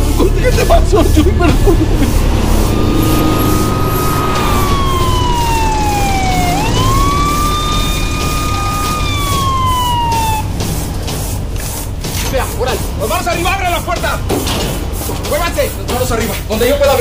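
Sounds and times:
low rumble of traffic: 0.0s - 17.0s
police siren wailing: 0.8s - 10.6s.

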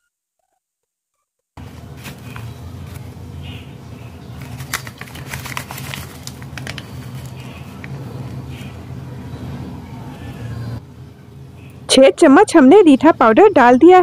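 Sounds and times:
steady low hum: 1.6s - 14.0s
plastic bag crinkling: 4.4s - 8.7s
sharp clicks and rustles: 4.4s - 8.8s.

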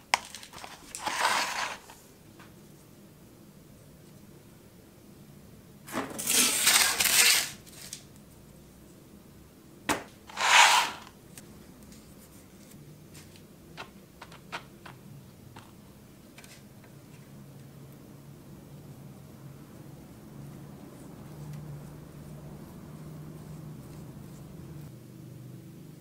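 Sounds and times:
cardboard rustling scrape: 0.3s - 2.0s, 5.9s - 8.0s, 10.3s - 11.1s.

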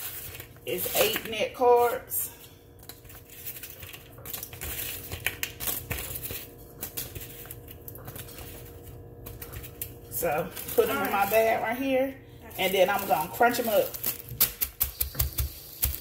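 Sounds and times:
plastic bag crinkling: 2.8s - 14.5s.

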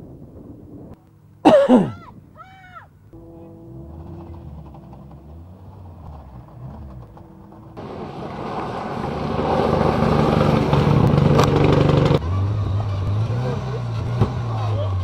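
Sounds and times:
car engine steady note: 3.0s - 15.0s
low engine drone: 3.0s - 15.0s
rally car engine at full power: 3.1s - 15.0s
gravel spraying: 3.8s - 12.2s.

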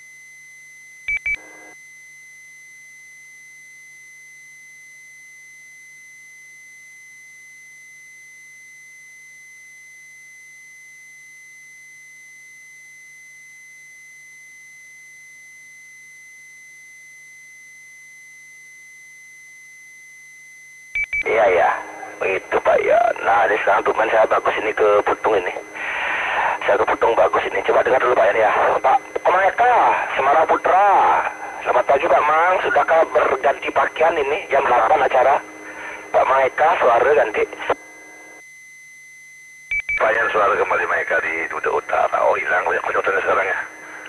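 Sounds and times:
radio double beep: 21.0s - 38.4s, 39.7s - 44.0s
low hum: 21.3s - 38.4s.

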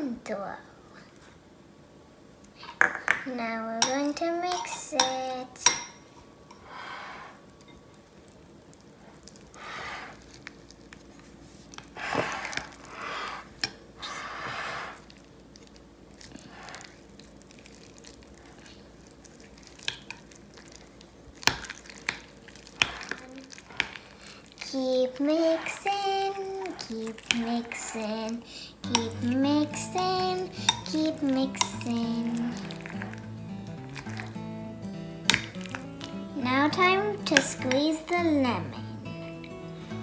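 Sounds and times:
utensil stirring guacamole in bowl: 3.8s - 40.0s
utensil tapping glass bowl: 28.8s - 29.8s, 30.6s - 31.9s.

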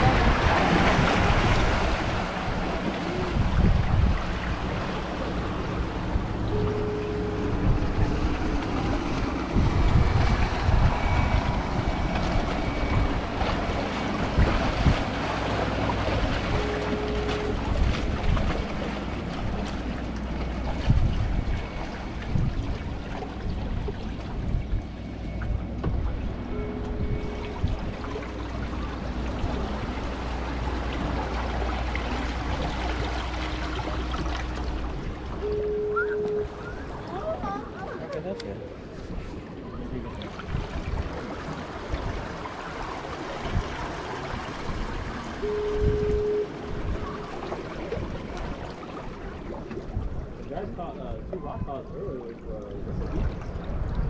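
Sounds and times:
waves washing against rocks: 0.0s - 6.5s, 7.5s - 24.6s, 38.8s - 50.4s
wind buffeting the microphone: 0.0s - 6.5s, 7.4s - 16.7s, 17.4s - 33.0s, 38.7s - 54.0s
steady low rumble: 0.0s - 37.8s
motorboat engine humming: 0.0s - 54.0s.

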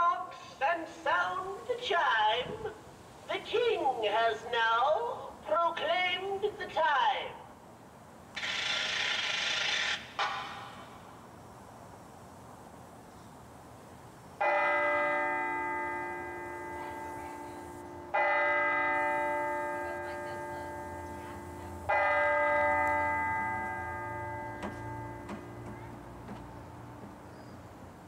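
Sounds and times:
clock tower bell striking: 14.4s - 26.2s.

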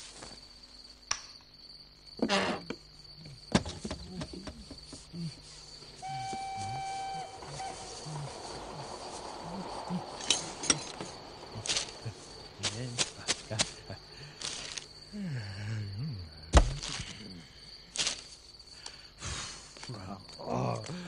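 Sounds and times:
steady high tone: 6.1s - 8.8s
loud thump: 16.5s - 16.9s.

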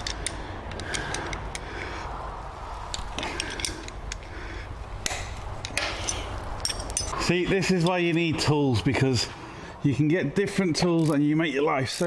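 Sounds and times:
hand tools clinking on bolt: 5.0s - 8.0s.

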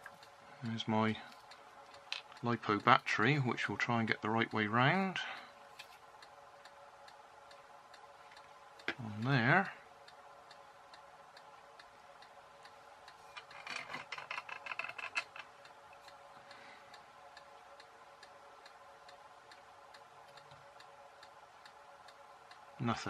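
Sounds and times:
clock ticking: 0.0s - 5.6s, 6.2s - 23.0s
faint hum: 0.0s - 23.0s
clicking and rustling of handling: 13.1s - 16.2s.

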